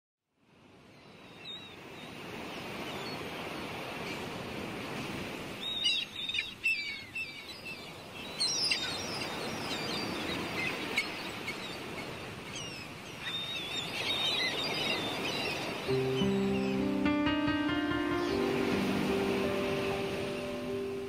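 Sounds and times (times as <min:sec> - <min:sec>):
sea surf washing: 0:01.8 - 0:06.9, 0:07.6 - 0:21.0
birds chirping: 0:05.5 - 0:21.0.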